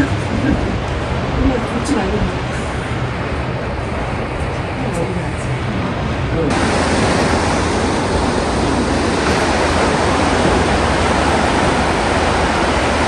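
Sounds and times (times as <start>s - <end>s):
sea surf washing onto shore: 0.0s - 13.0s.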